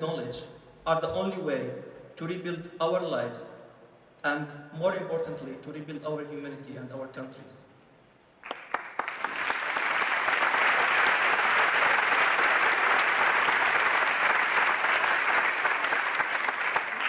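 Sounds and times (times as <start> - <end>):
audience applauding: 8.4 - 17.0.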